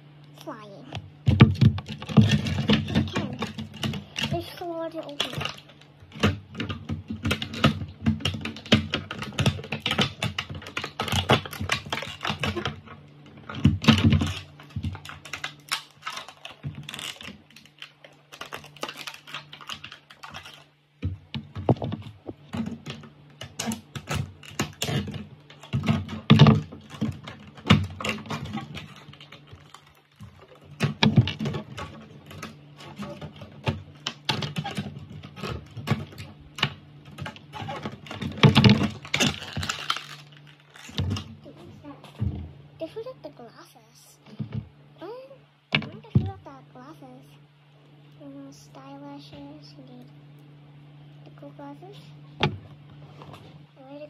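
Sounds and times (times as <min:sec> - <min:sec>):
faint low hum: 0:00.0 - 0:54.0
plastic toy parts clicking: 0:13.5 - 0:20.7, 0:34.0 - 0:41.1.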